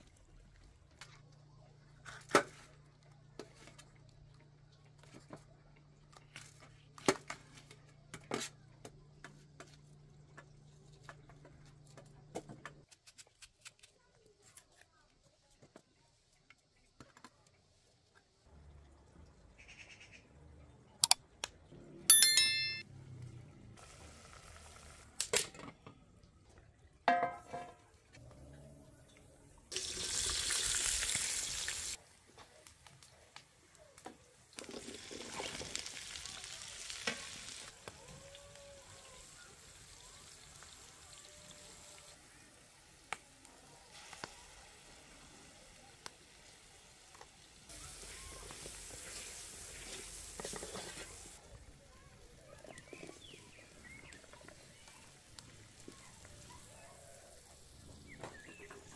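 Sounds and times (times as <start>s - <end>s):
vegetables sizzling in pot: 23.8s - 25.2s, 29.7s - 32.0s, 34.3s - 51.4s.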